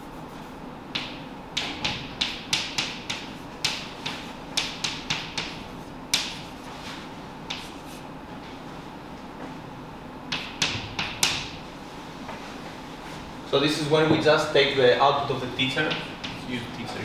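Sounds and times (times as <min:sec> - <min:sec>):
chalk tapping on blackboard: 0:00.0 - 0:08.1, 0:10.3 - 0:11.6, 0:15.6 - 0:16.6.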